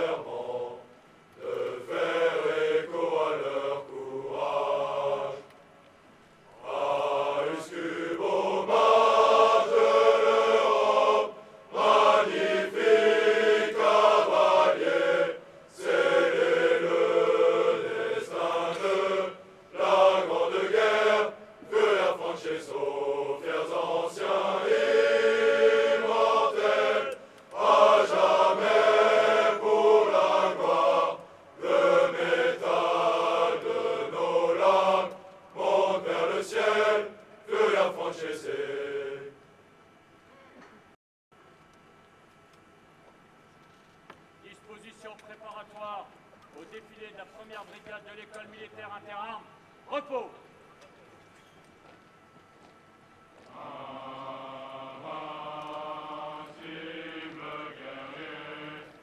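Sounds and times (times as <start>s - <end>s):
men singing in unison: 6.6s - 39.3s, 53.5s - 59.0s.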